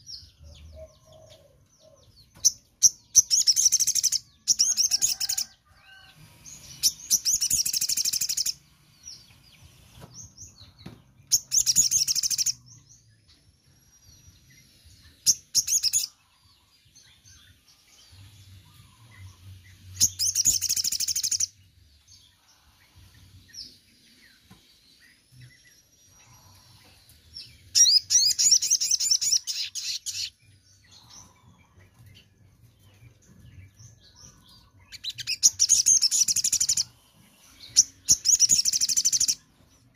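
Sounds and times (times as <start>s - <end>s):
bird singing high trills: 2.8s - 8.6s, 11.4s - 12.7s, 18.1s - 21.6s, 27.5s - 31.4s, 34.8s - 37.0s, 37.7s - 39.5s.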